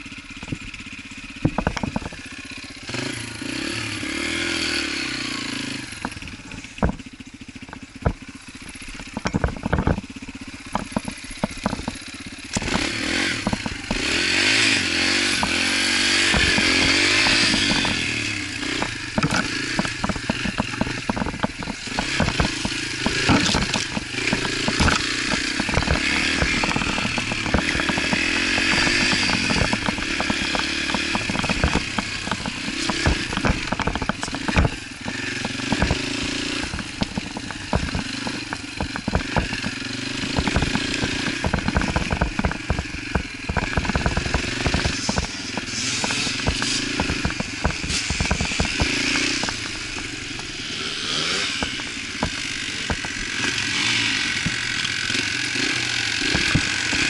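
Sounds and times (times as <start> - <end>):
dirt bike engine revving: 0.0 - 57.0
knocks and rattles: 0.0 - 57.0.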